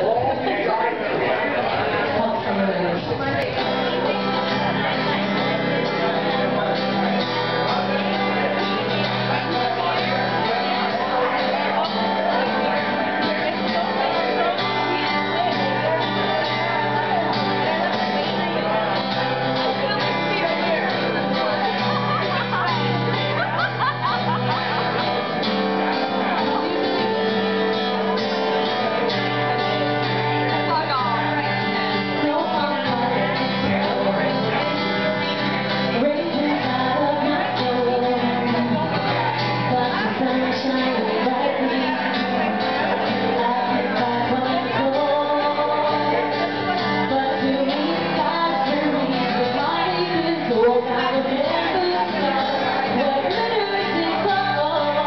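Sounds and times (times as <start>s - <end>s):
acoustic guitar strumming: 0.0s - 55.0s
woman singing: 2.0s - 5.1s, 30.6s - 55.0s.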